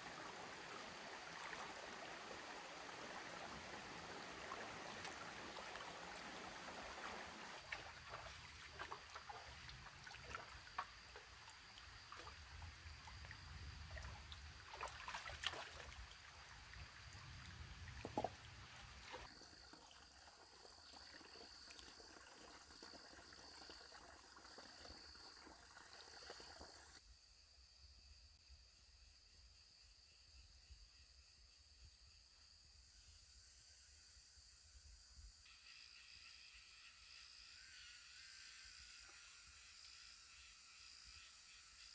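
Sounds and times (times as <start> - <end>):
stream trickling: 0.0 - 27.0
feet wading in water: 0.8 - 20.1
high insect buzz: 35.5 - 41.9.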